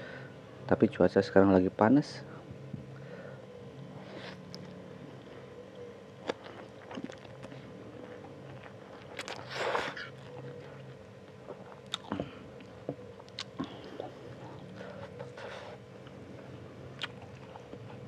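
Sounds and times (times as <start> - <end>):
chewing noodles: 6.2 - 16.2, 17.0 - 18.0.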